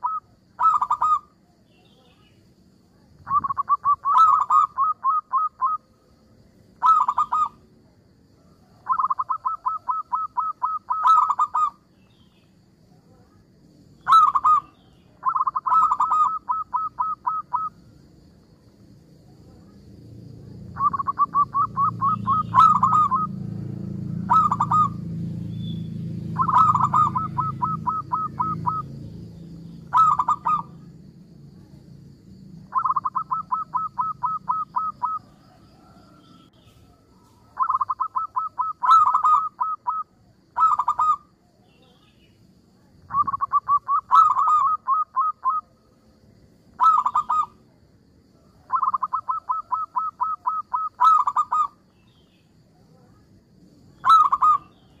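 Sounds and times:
dove cooing: 0.0s - 1.3s, 3.2s - 5.9s, 6.8s - 7.6s, 8.7s - 11.8s, 14.0s - 17.8s, 20.7s - 23.6s, 24.2s - 25.1s, 26.2s - 29.0s, 29.8s - 30.9s, 32.6s - 41.3s, 43.0s - 45.7s, 46.7s - 47.6s, 48.6s - 51.8s, 54.0s - 55.0s
low background rumble: 17.7s - 37.0s.

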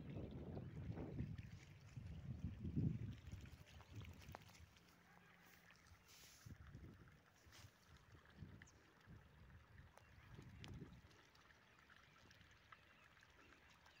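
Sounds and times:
wind buffeting microphone: 0.0s - 4.7s, 8.2s - 11.1s.

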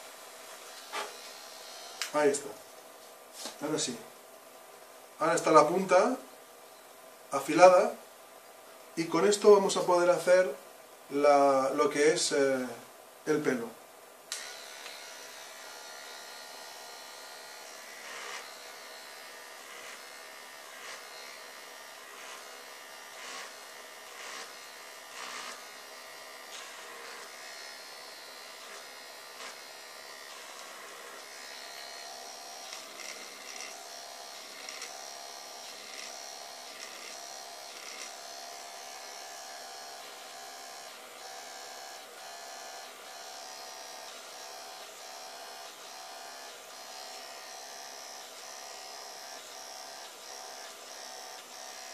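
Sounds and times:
electric eraser motor whine: 0.7s - 2.4s, 14.3s - 51.9s.

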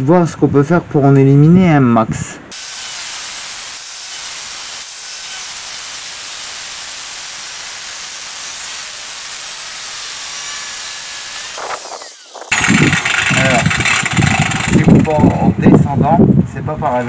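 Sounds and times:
angle grinder cutting steel: 2.5s - 15.1s.

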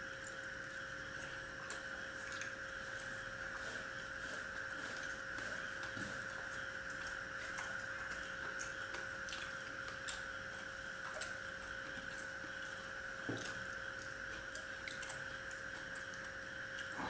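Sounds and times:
faint hum: 0.0s - 17.0s.

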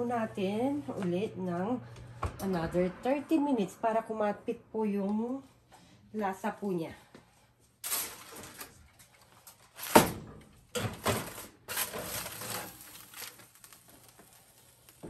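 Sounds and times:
aluminium foil crinkling: 7.8s - 10.2s, 10.8s - 15.0s.

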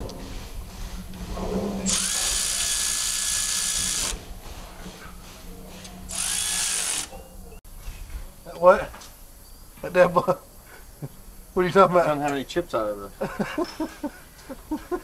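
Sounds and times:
power tool whirring: 1.9s - 4.2s, 6.1s - 7.1s.

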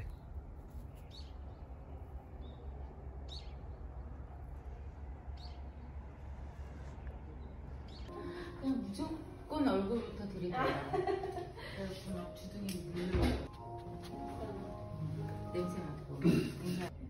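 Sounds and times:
small bird chirping: 0.0s - 4.0s.

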